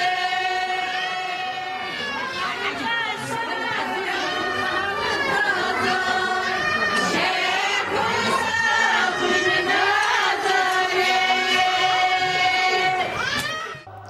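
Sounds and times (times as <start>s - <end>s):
women singing folk song: 0.0s - 13.2s.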